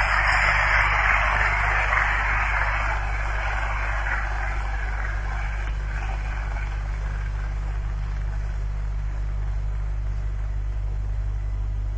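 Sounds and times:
hiss: 0:00.0 - 0:08.7
steady low hum: 0:00.0 - 0:11.9.

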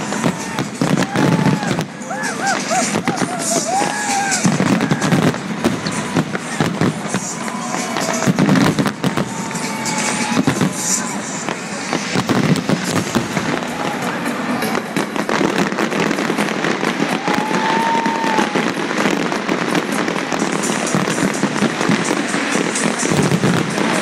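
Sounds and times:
fireworks bursting and crackling: 0:00.0 - 0:24.0.

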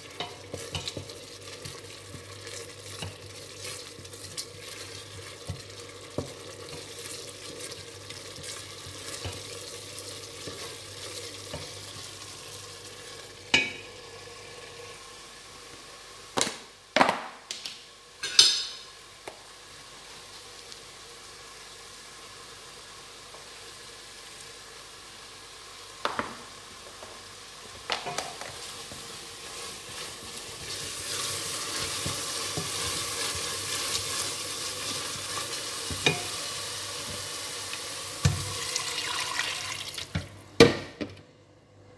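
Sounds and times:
soup base sizzling in a pot: 0:00.0 - 0:40.8
utensils clacking against pot: 0:18.2 - 0:18.8, 0:35.9 - 0:36.4
wooden spatula stirring: 0:29.0 - 0:36.4.

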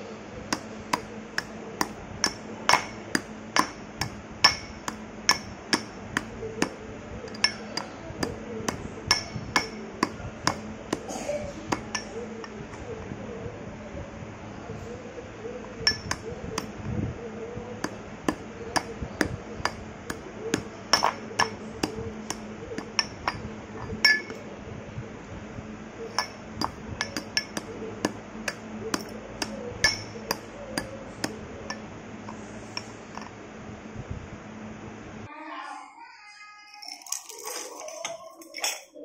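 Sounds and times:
stone pestle pounding in mortar: 0:00.5 - 0:12.1, 0:17.8 - 0:23.4, 0:26.2 - 0:31.8.

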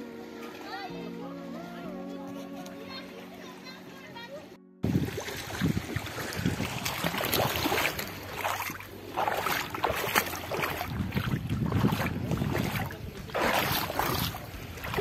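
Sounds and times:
wind buffeting microphone: 0:04.8 - 0:08.6, 0:09.2 - 0:15.0
water lapping on pebbly shore: 0:04.8 - 0:15.0.

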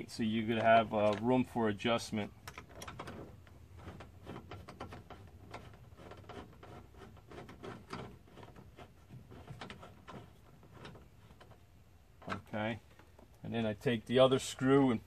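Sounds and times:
screwdriver turning a screw: 0:02.5 - 0:11.6.

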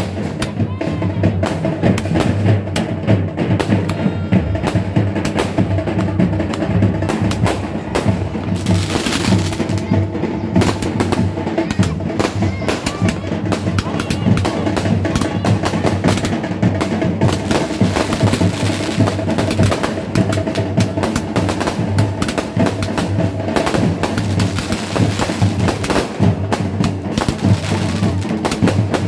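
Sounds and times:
fireworks bursting and crackling: 0:00.0 - 0:29.0
loud drum-heavy music: 0:00.0 - 0:29.0.

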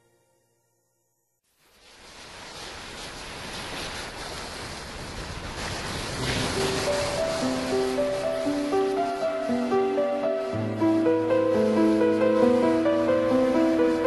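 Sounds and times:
ocean waves: 0:01.7 - 0:14.0
slow sustained music notes: 0:07.2 - 0:14.0.

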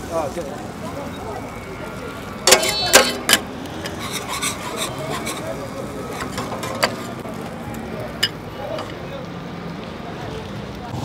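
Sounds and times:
metal utensils clinking: 0:02.4 - 0:09.0
utensils tapping and scraping: 0:02.4 - 0:09.0.

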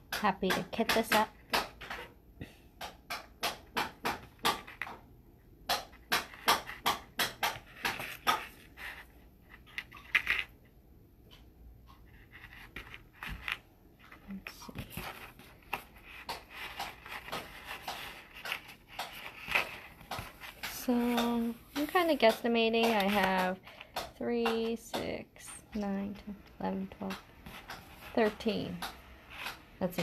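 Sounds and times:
beads clicking on a tabletop: 0:05.7 - 0:10.5, 0:14.3 - 0:25.1.

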